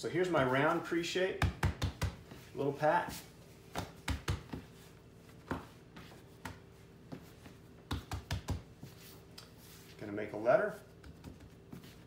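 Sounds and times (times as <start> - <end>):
hands patting dough on marble: 1.3 - 9.6, 10.9 - 12.0.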